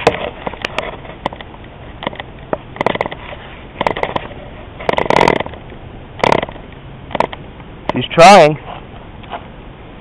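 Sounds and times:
model engine popping: 0.0 - 3.2, 3.8 - 5.6, 6.2 - 8.0.

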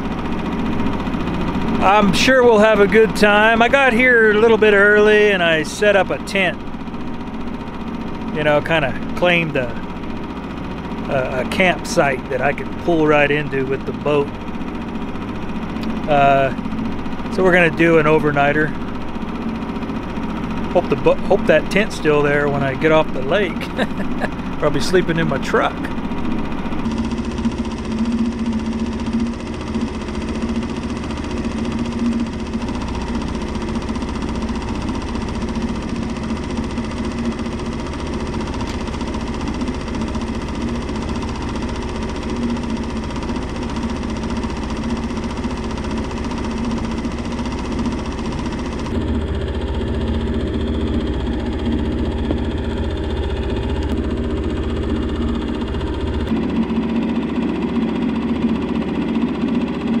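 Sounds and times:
outboard motor droning: 0.0 - 60.0.

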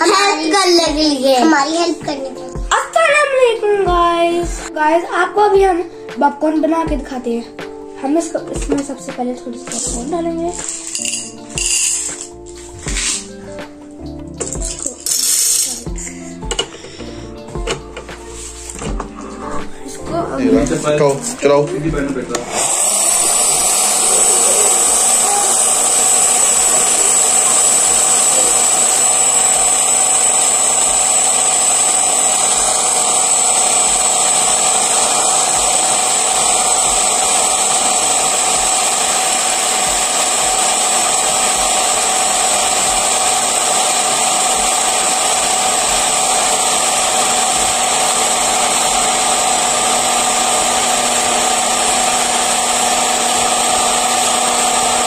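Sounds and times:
popcorn maker fan whirring: 9.7 - 13.3, 14.4 - 19.3, 20.3 - 55.0.

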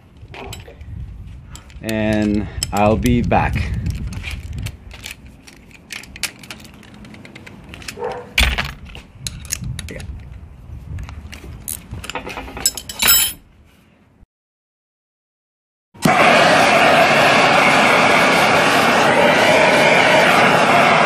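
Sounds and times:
metal clank: 12.1 - 13.4.

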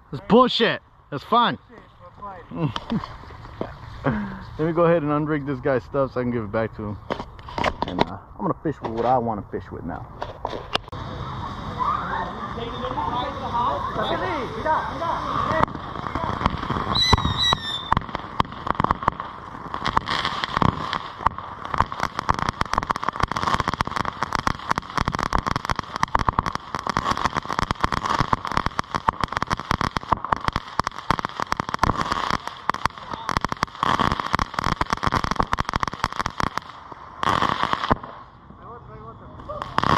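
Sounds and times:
firework fountain crackling: 0.0 - 39.9.

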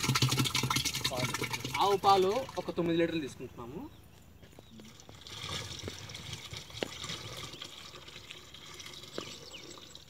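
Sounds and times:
milk pouring into plastic drum: 0.0 - 2.8, 4.8 - 10.0.

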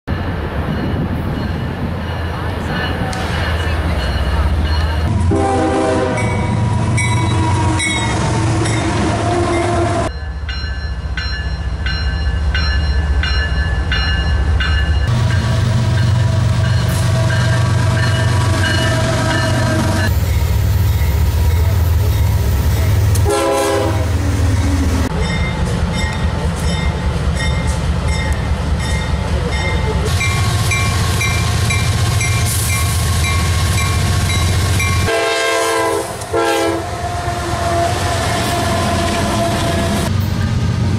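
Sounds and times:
locomotive air horn blasts: 5.1 - 10.1, 23.2 - 24.2, 34.6 - 40.1.

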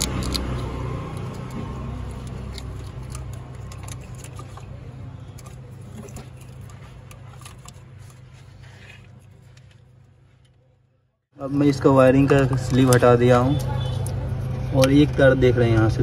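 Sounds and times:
clicks and rustles of wiring: 0.0 - 10.7.

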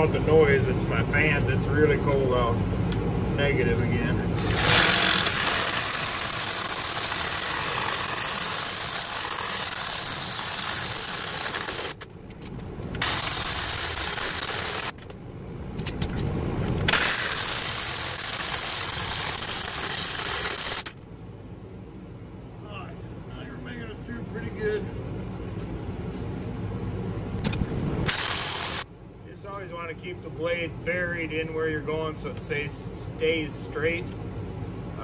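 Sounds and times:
reciprocating saw cutting metal: 4.4 - 12.0, 13.0 - 15.0, 16.9 - 21.0, 28.0 - 28.8.

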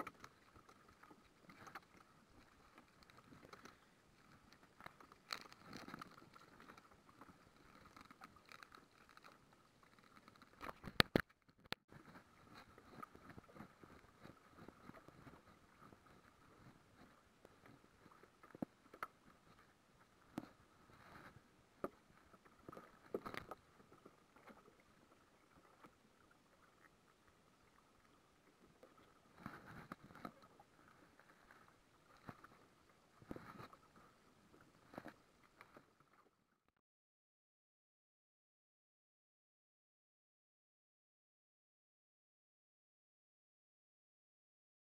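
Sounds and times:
handling crackles and rustles: 0.0 - 26.3, 28.8 - 36.4.

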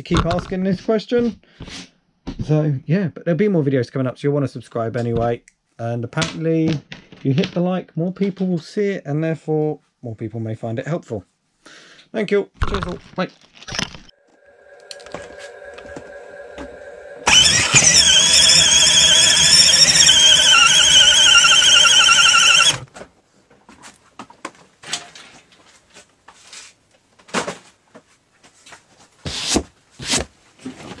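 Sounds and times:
electric motor humming: 14.8 - 22.8
tyre squealing: 17.2 - 22.8.

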